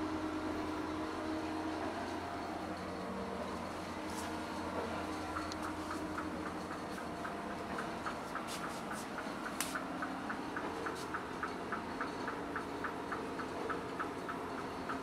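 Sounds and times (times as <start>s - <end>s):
steady ticking: 3.4s - 15.0s.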